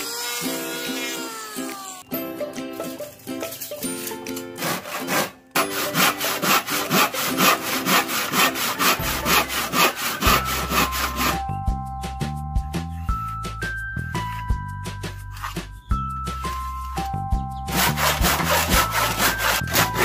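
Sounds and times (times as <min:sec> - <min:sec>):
handsaw cutting wood: 0:00.0 - 0:01.9, 0:04.6 - 0:11.5, 0:17.7 - 0:20.0
background music: 0:00.5 - 0:20.0.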